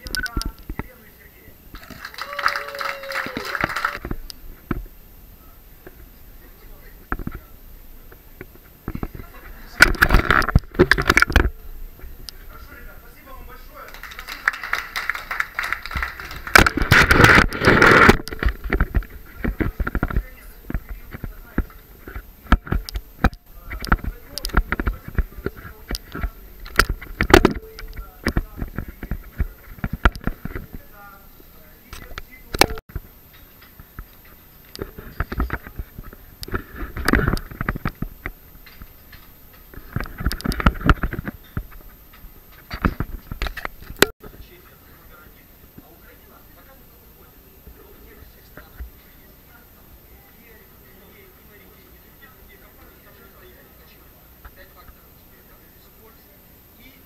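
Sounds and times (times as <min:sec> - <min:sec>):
camera handling rubbing and bumping: 0:08.5 - 0:11.5, 0:15.9 - 0:30.9, 0:34.8 - 0:44.1.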